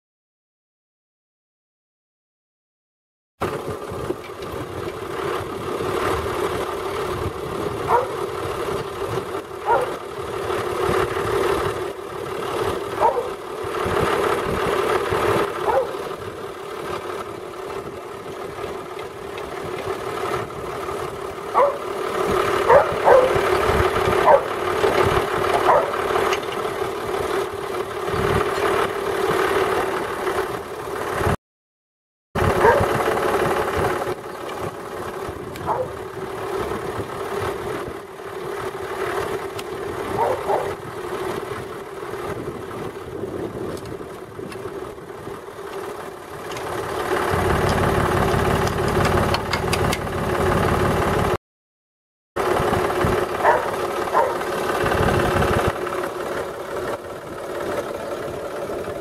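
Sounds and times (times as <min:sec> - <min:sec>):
tractor engine idling: 0:03.4 - 0:31.4, 0:32.4 - 0:51.4, 0:52.4 - 0:59.0.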